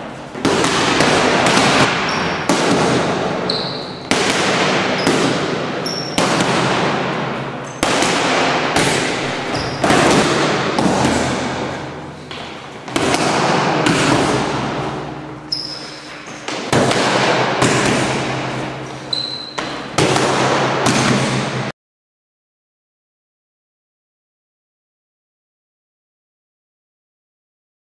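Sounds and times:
punches smacking focus mitts: 0.3s - 3.4s, 4.1s - 5.6s, 7.8s - 14.8s, 16.4s - 18.6s, 19.6s - 21.7s
brief high squeaks: 15.5s - 16.1s, 19.1s - 19.6s.

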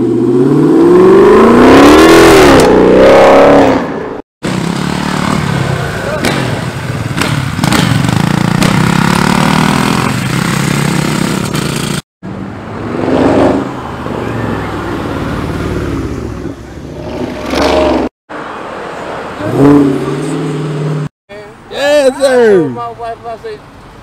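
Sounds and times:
dirt bike passing: 0.0s - 12.0s
car engines revving hard: 0.0s - 21.1s.

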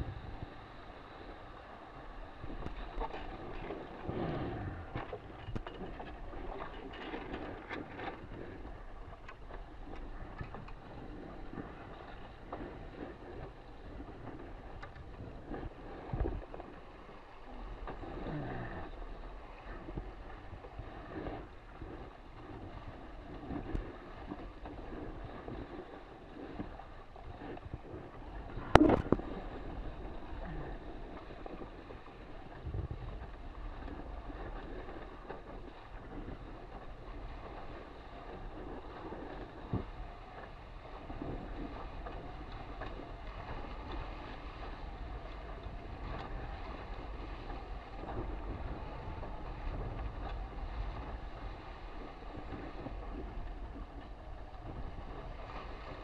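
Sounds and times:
water rushing along hull: 0.0s - 56.0s
wind buffeting microphone: 0.0s - 56.0s
sharp knocks on boat: 28.6s - 29.3s.

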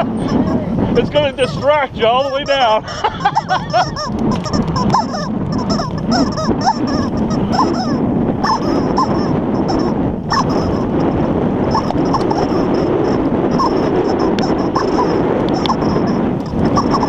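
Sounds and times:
rubber chicken toy squeaking: 1.3s - 2.7s, 3.3s - 10.9s, 11.7s - 17.0s.

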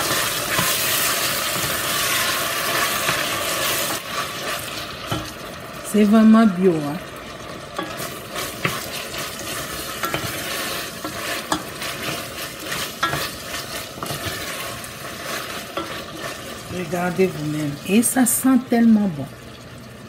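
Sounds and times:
utensil scraping metal pot: 0.0s - 5.4s, 7.8s - 16.9s
food sizzling in oil: 0.0s - 20.0s.

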